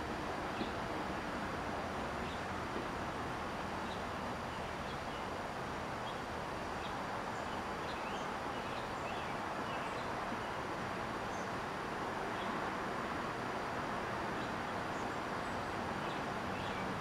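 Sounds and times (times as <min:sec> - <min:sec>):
outdoor rumble and hiss: 0:00.0 - 0:17.0.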